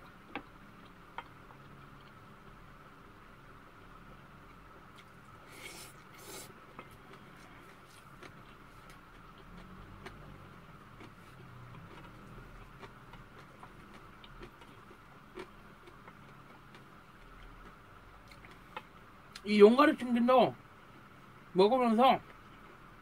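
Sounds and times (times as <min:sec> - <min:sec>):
faint hum: 0:00.0 - 0:23.0
person eating: 0:04.9 - 0:18.9.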